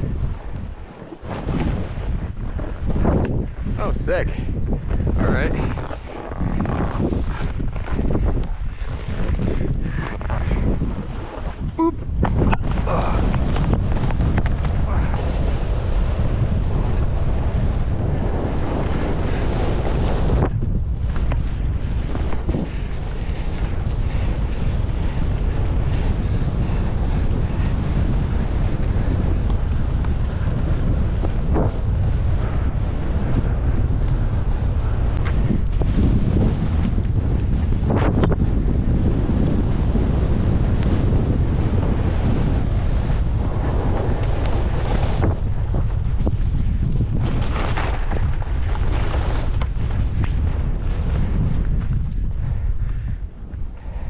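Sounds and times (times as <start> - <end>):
skis scraping over snow: 0.0 - 54.0
wind buffeting microphone: 0.0 - 54.0
skis hissing through snow: 0.2 - 3.0, 5.5 - 11.6, 42.0 - 46.0.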